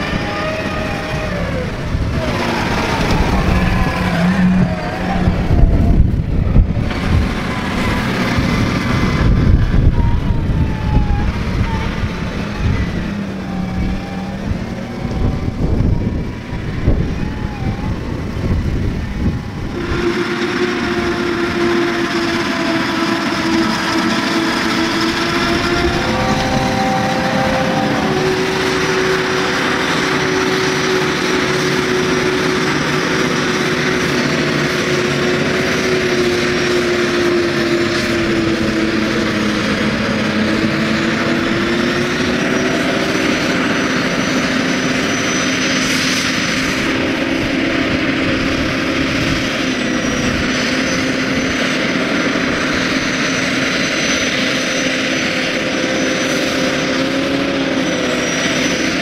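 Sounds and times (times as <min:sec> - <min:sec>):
farm machinery drone: 0:00.0 - 0:59.0.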